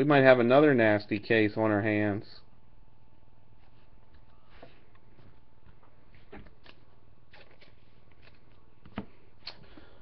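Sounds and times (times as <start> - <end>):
hands handling trading cards: 3.6 - 9.9.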